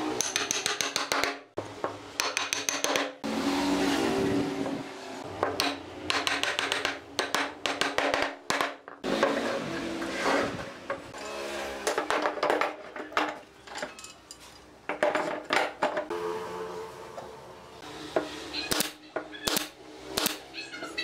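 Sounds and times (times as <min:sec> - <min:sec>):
wooden pieces knocking and clicking: 0:02.2 - 0:03.2, 0:05.4 - 0:09.0, 0:11.8 - 0:14.0.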